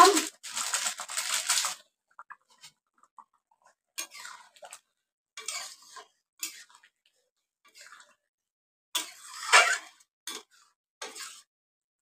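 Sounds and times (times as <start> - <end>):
spatula scraping through thick curry: 4.0 - 8.3, 9.0 - 11.5.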